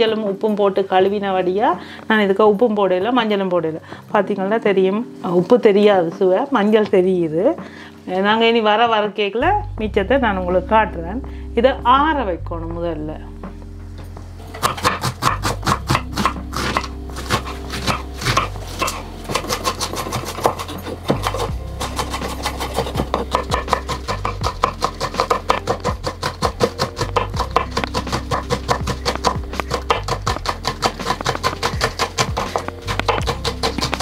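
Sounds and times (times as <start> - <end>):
background music with bass line: 9.4 - 34.0
knife chopping on wooden board: 14.5 - 34.0.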